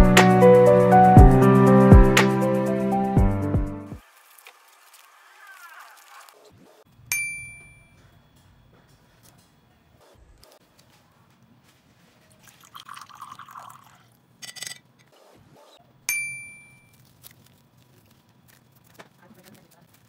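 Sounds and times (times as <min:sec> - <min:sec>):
glass bowl knocking and ringing: 0:07.1 - 0:08.0, 0:16.1 - 0:16.9
light glass clinks: 0:07.1 - 0:08.1, 0:16.1 - 0:17.0
water pouring into glass cup: 0:12.4 - 0:14.2.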